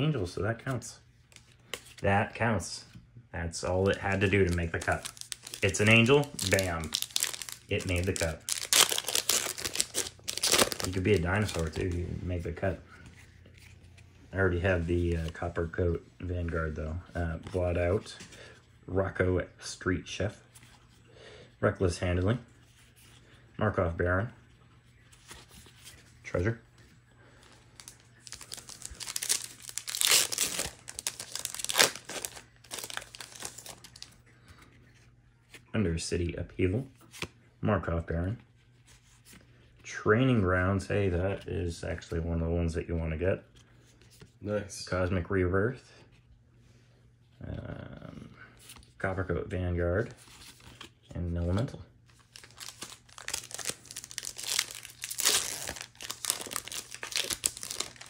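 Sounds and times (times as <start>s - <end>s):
foil wrapper crinkling: 3.8s - 11.9s, 27.4s - 34.2s, 52.1s - 58.0s.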